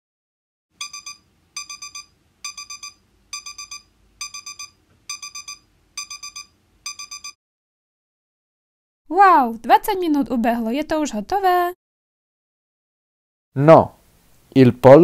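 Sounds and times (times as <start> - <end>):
digital timer beeping: 0.8 - 7.4.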